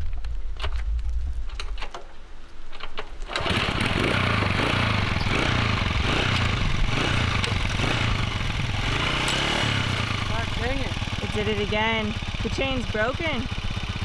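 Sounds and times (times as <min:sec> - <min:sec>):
small engine running: 0:03.3 - 0:14.0.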